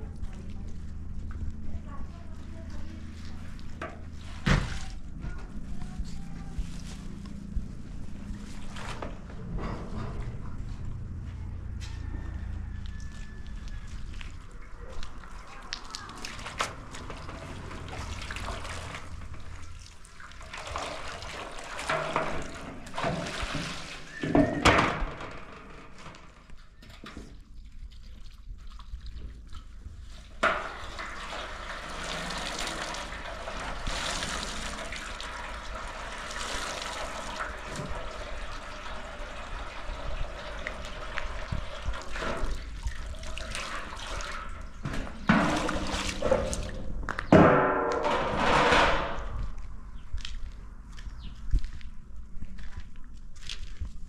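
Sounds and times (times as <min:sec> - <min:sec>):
water sloshing and splashing: 0:00.0 - 0:10.8, 0:12.5 - 0:51.8
water dripping into basin: 0:40.4 - 0:44.8.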